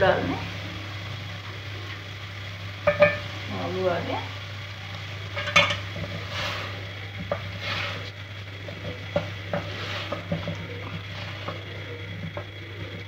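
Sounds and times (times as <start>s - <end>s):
food sizzling: 0.0s - 13.0s
spatula knocking against pot: 2.9s - 3.2s, 8.7s - 12.5s
wooden spatula scraping a pot: 5.4s - 13.0s.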